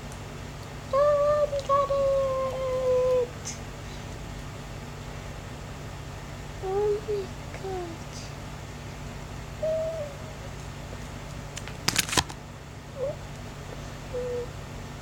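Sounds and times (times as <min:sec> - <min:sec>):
steady low hum: 0:00.0 - 0:15.0
soft hoot-like tones: 0:09.6 - 0:10.6, 0:13.8 - 0:14.6.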